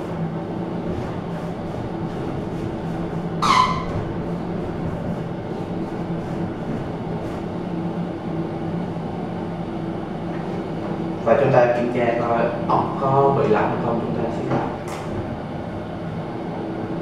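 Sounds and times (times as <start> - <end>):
ventilation fan humming: 0.0 - 17.0
short loud squeak: 3.4 - 4.0.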